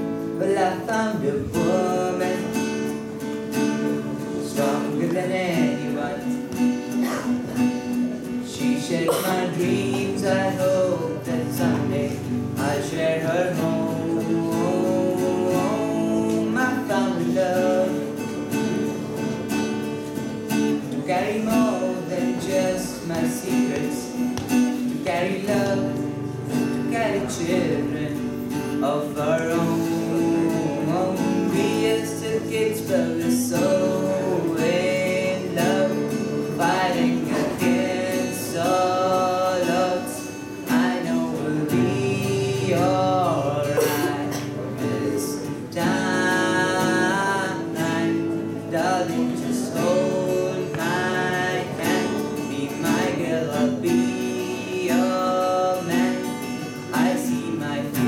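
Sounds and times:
boy singing into a microphone: 0.0s - 58.0s
strummed guitar: 0.0s - 58.0s.

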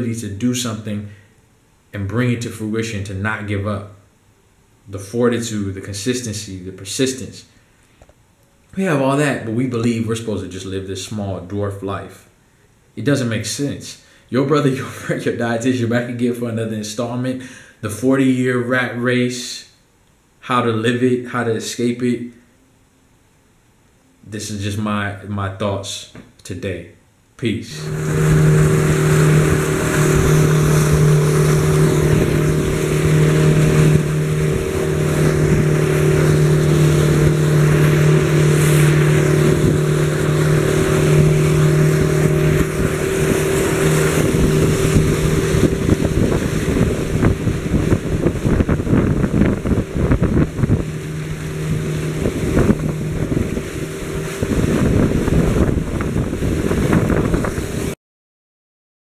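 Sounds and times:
motorboat engine humming: 27.7s - 58.0s
rushing water: 27.7s - 58.0s
wind on microphone: 27.8s - 58.0s.

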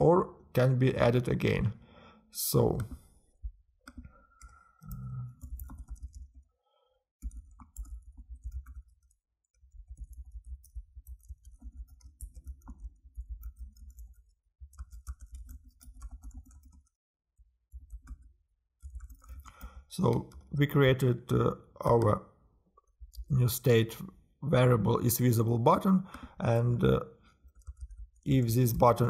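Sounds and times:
keyboard typing clicks: 3.8s - 6.4s, 7.2s - 16.9s, 17.8s - 20.5s, 27.5s - 29.0s.

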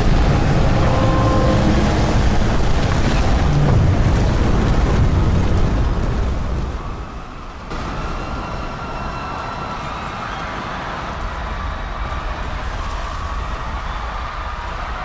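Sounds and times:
faint high whine: 0.0s - 4.1s
quieter steady rumble: 0.0s - 6.8s
deep rumbling roar: 0.0s - 7.0s.

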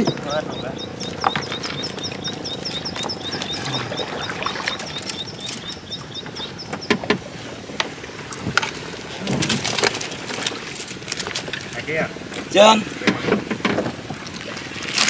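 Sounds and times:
knocks in a small boat: 0.0s - 4.8s, 6.2s - 8.6s, 13.0s - 14.2s
high chirping call: 0.0s - 7.1s
water splashes: 0.0s - 15.0s.

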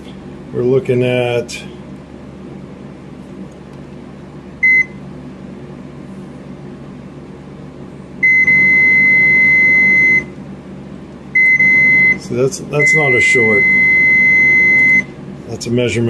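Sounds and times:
multimeter beeping: 12.8s - 15.1s.

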